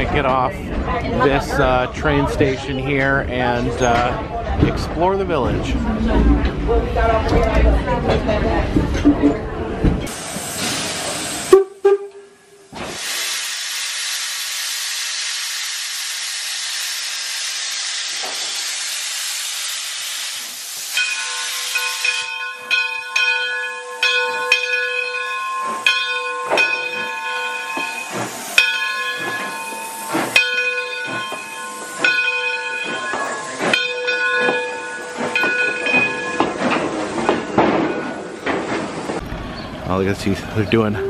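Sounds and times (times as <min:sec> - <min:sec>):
steam locomotive hissing: 0:10.0 - 0:39.2
locomotive bell ringing: 0:20.9 - 0:41.0.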